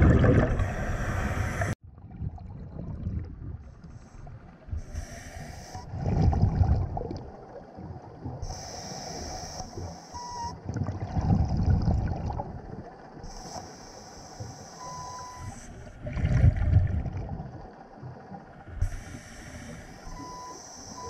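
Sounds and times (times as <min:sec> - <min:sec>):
low underwater bubbling: 0:00.0 - 0:05.0, 0:05.8 - 0:08.6, 0:10.2 - 0:13.4, 0:14.8 - 0:19.1
regulator hiss on inhale: 0:00.8 - 0:01.8, 0:04.8 - 0:05.9, 0:08.4 - 0:10.2, 0:13.2 - 0:15.8, 0:18.8 - 0:21.0.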